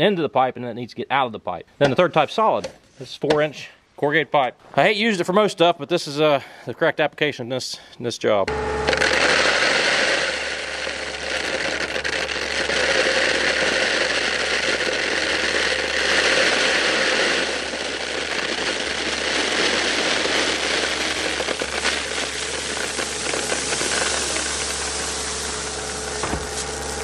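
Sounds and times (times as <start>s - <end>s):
gravel rattling out of bucket: 9.4s - 27.0s
machine engine running: 20.9s - 27.0s.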